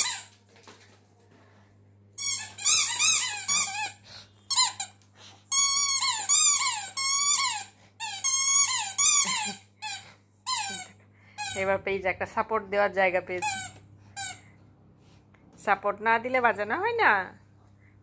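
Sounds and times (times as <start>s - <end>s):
squeaky dog toy squeaking: 0.0s - 0.3s, 2.2s - 11.7s, 13.4s - 14.4s.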